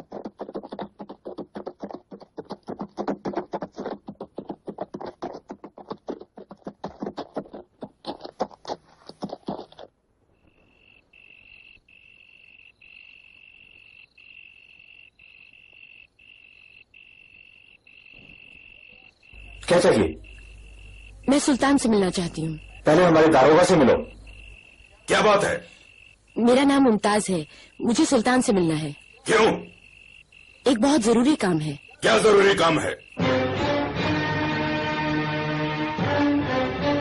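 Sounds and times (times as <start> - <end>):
horse hooves galloping: 0.0 - 11.0
cricket trilling: 0.0 - 33.4.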